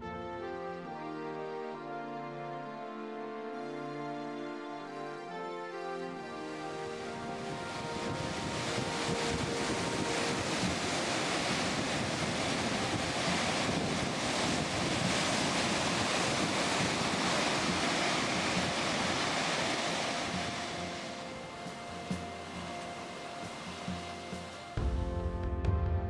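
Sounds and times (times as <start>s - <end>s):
surf breaking on rocky shore: 6.4s - 24.8s
wind buffeting microphone: 6.8s - 24.8s.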